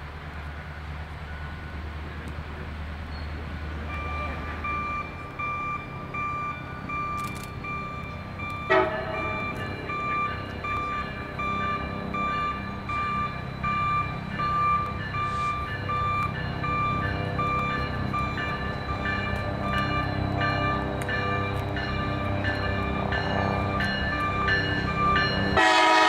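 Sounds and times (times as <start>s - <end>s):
locomotive bell ringing: 3.1s - 26.0s
train horn toot: 8.7s - 9.4s, 25.5s - 26.0s.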